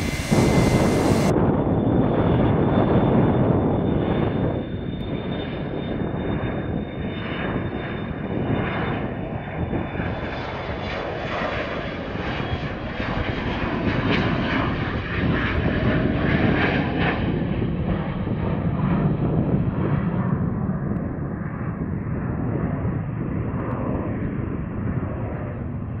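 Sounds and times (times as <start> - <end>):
high jet whine: 0.0 - 1.6
jet engines at takeoff power: 0.0 - 26.0.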